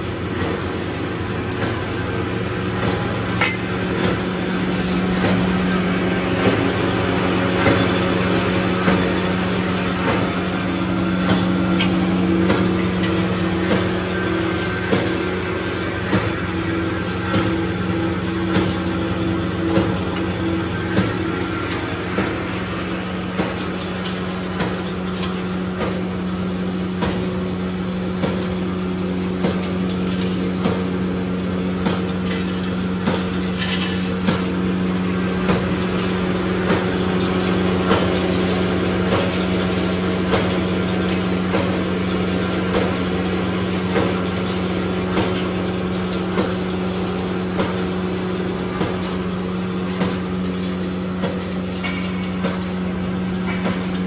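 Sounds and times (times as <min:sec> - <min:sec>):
machine humming: 0:00.0 - 0:54.0
sharp metallic clack of cutter: 0:49.9 - 0:50.2, 0:51.2 - 0:52.8, 0:53.4 - 0:54.0.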